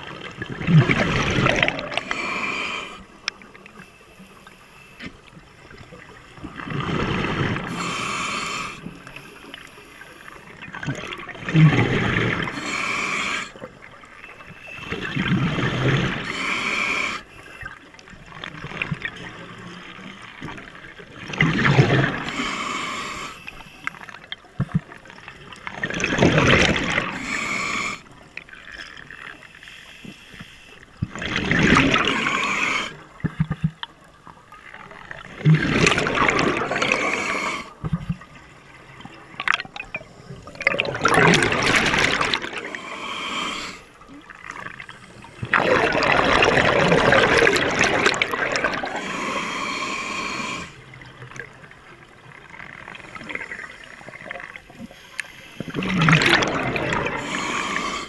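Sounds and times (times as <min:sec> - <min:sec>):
diver exhaling bubbles underwater: 0:00.0 - 0:02.9, 0:10.7 - 0:13.7, 0:21.2 - 0:23.3, 0:25.7 - 0:28.0, 0:31.1 - 0:33.0, 0:35.2 - 0:37.8, 0:39.4 - 0:44.8, 0:45.4 - 0:50.8, 0:55.6 - 0:58.0.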